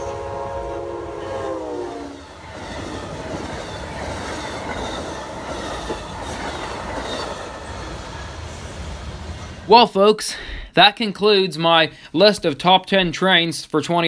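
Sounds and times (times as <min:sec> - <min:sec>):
locomotive horn: 0:00.0 - 0:02.4
train cars rumbling on rails: 0:00.0 - 0:09.8.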